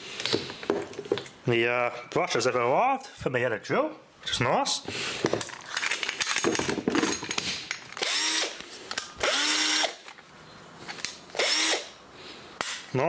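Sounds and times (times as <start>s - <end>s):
cordless drill motor whirring: 8.0s - 8.6s, 9.2s - 10.0s, 11.3s - 12.0s.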